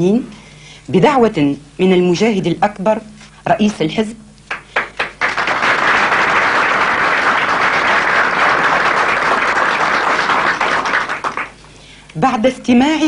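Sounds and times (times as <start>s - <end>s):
audience applauding: 4.5s - 11.6s.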